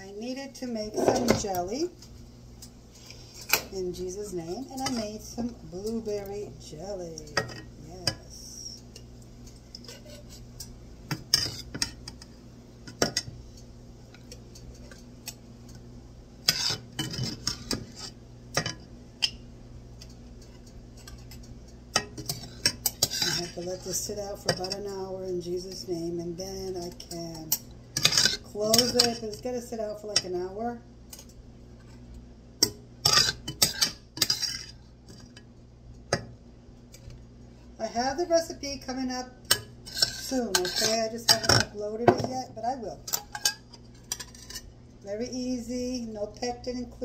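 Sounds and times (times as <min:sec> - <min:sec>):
knocks and scrapes on pot: 0:00.9 - 0:01.6.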